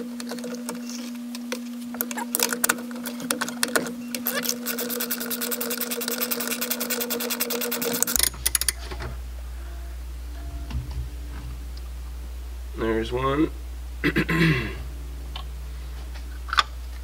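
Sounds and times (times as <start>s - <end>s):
socket ratchet clicking: 4.3s - 8.8s.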